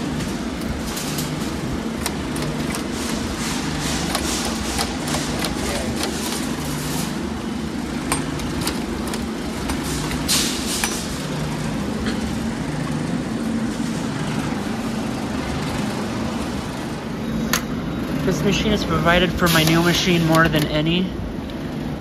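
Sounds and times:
low background hum: 0.0s - 22.0s
vending machine crank clicks: 0.5s - 6.7s, 7.9s - 11.1s.

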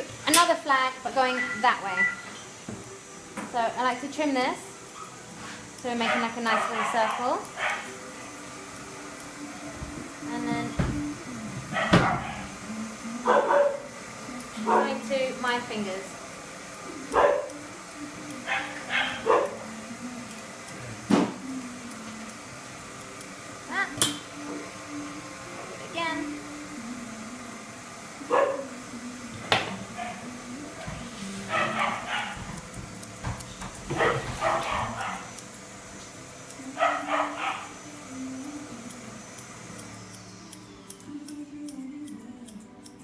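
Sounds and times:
dog barking: 6.0s - 7.9s, 11.7s - 12.5s, 13.3s - 13.8s, 14.7s - 14.9s, 17.1s - 17.5s, 18.5s - 19.6s, 28.3s - 28.7s, 31.5s - 32.4s, 33.9s - 35.3s, 36.8s - 37.7s.

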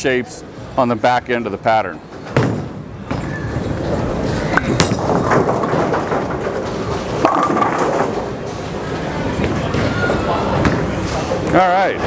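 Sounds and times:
bowling ball rolling: 2.1s - 11.4s
bowling ball thud: 4.8s - 8.4s
bowling pins crashing: 4.8s - 8.5s.

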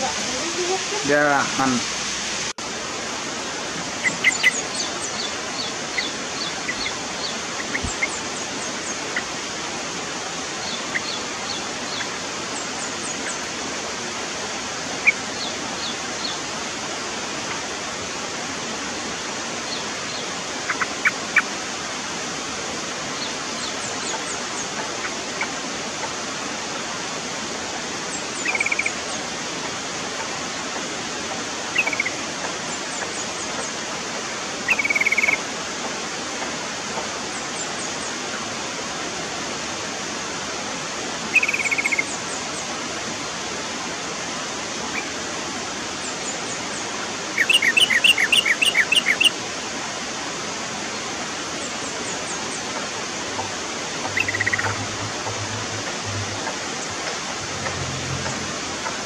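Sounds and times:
steady loud hiss: 0.0s - 59.0s
bird chirping: 4.0s - 9.3s, 10.6s - 13.5s, 28.4s - 28.9s, 31.8s - 32.2s, 34.7s - 35.4s, 41.3s - 42.4s, 47.4s - 49.3s, 54.0s - 55.4s
bubbly bird calls: 4.0s - 9.4s, 10.6s - 13.5s, 28.4s - 29.0s, 31.7s - 32.2s, 34.7s - 35.4s, 41.3s - 42.2s, 47.4s - 49.4s, 54.1s - 55.5s.

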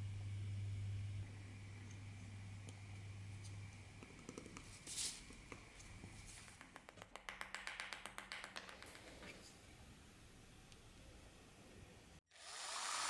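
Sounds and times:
hammer tapping metal ferrule: 6.6s - 9.2s.

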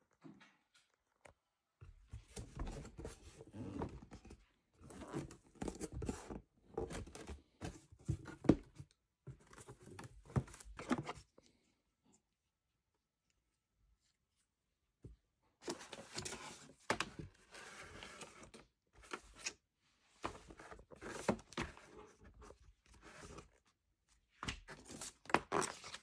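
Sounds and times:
cardboard and paper rustling: 2.0s - 11.4s, 15.6s - 23.6s, 24.4s - 26.0s.

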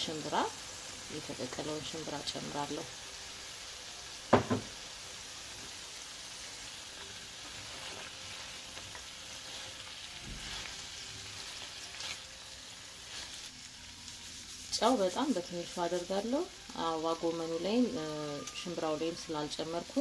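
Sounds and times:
food sizzling in a frying pan: 0.0s - 20.0s
soft knock: 4.3s - 4.7s.

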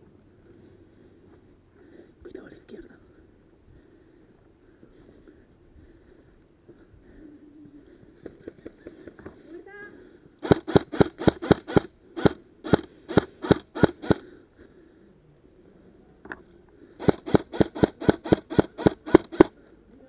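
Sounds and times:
airsoft rifle shots: 10.4s - 14.3s, 17.0s - 19.6s.

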